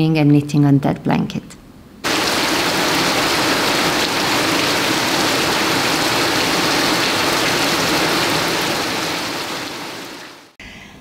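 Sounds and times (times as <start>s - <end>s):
steady rain falling: 2.0s - 10.6s.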